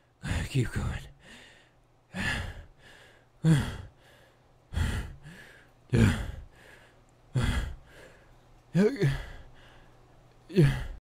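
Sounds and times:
person gasping and groaning: 2.1s - 2.8s, 3.4s - 4.1s, 4.7s - 6.7s, 7.3s - 8.0s, 8.8s - 9.5s, 10.5s - 11.0s.

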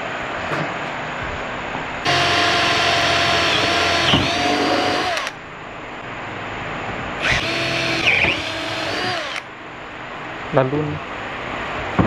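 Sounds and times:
power tool motor running: 2.1s - 5.4s, 7.2s - 9.5s.

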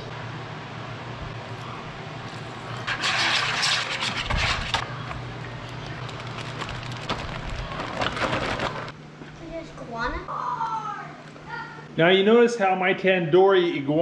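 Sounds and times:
whisk scraping plastic bowl: 2.8s - 4.7s
plastic bag crinkling: 5.6s - 9.0s.

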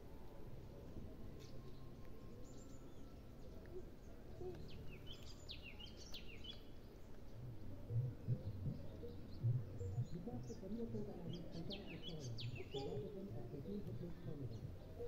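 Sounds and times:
low outdoor rumble: 0.0s - 15.0s
small birds chirping: 1.4s - 15.0s
dull low thumps: 7.4s - 10.5s.

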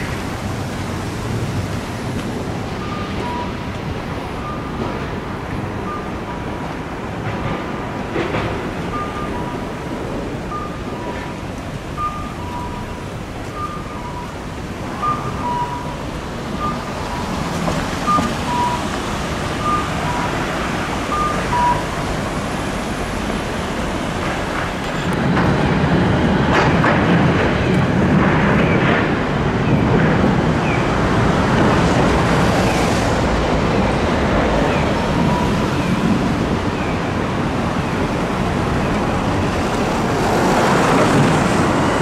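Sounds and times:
city street traffic: 0.0s - 42.0s
crossing signal beeps: 2.6s - 6.7s, 8.8s - 22.4s, 34.7s - 36.1s.

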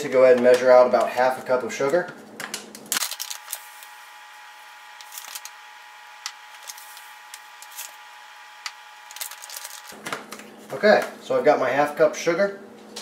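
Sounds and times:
plastic bag rustling: 3.0s - 4.0s, 4.8s - 5.6s, 6.3s - 8.0s, 9.0s - 10.8s.

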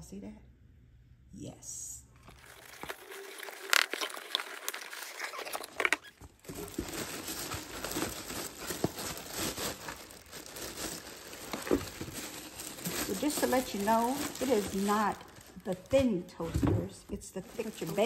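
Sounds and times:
paper rustling: 2.2s - 16.1s, 17.4s - 18.0s
plastic bag crinkling: 2.2s - 16.3s, 17.2s - 18.0s.

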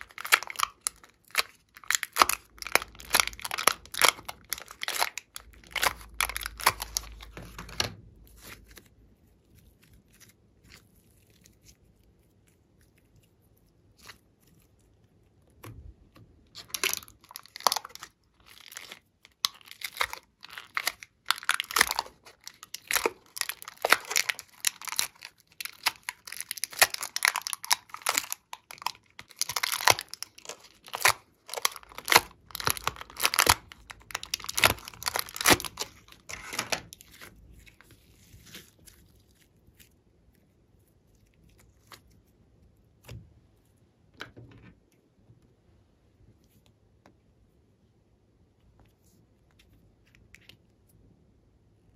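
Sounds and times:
plastic tray crinkling and crackling: 0.0s - 8.9s, 14.0s - 40.0s.

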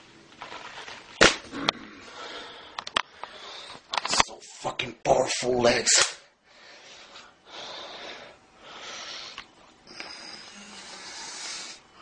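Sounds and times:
man breathing heavily: 1.8s - 3.9s, 6.3s - 12.0s.

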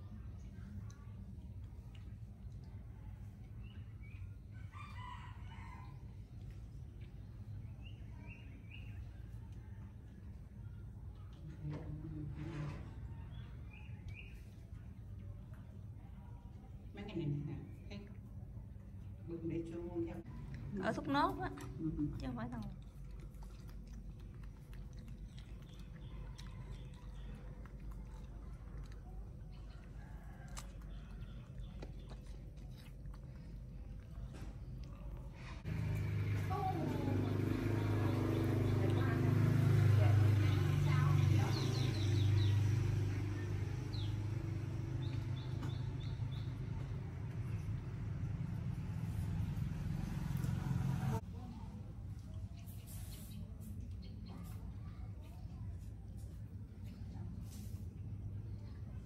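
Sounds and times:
rooster crowing: 4.6s - 6.0s
monkey chewing with crunching clicks: 20.3s - 36.1s.

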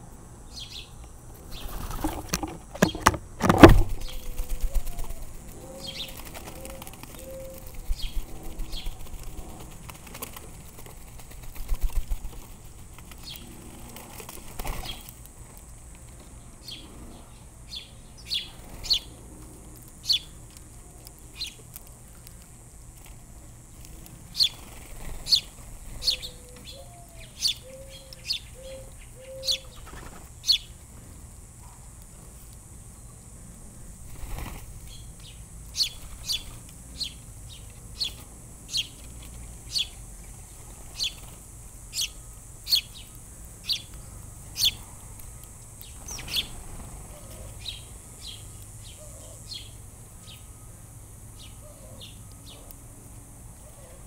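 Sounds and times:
songbirds chirping: 0.0s - 54.0s
dove cooing: 1.6s - 9.8s, 25.0s - 30.0s, 46.2s - 47.8s, 51.6s - 52.7s.

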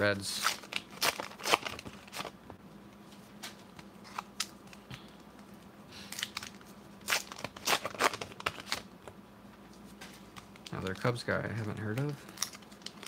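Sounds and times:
soft card rustle: 9.7s - 13.0s.

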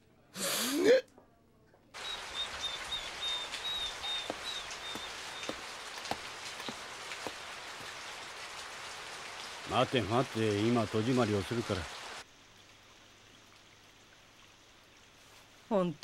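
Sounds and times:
faint high chirping: 2.0s - 5.6s
raindrop ticks: 2.0s - 12.8s
steady rain falling: 2.0s - 16.0s.

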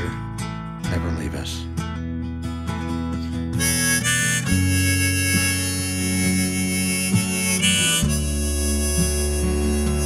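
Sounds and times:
harmonica playing chords: 3.5s - 10.0s.

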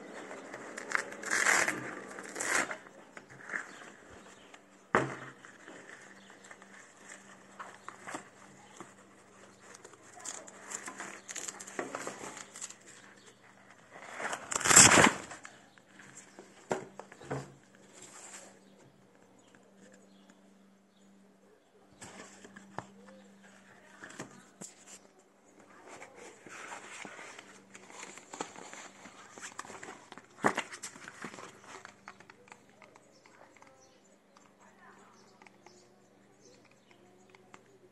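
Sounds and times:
packaging rustling and crinkling: 0.0s - 16.2s, 25.6s - 33.0s.

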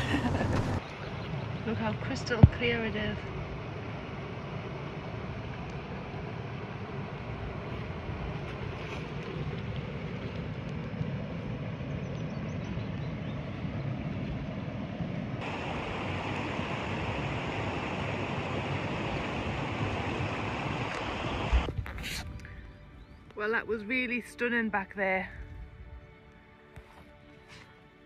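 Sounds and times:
wind: 0.0s - 28.0s
water rushing into rock pool: 15.4s - 21.7s.

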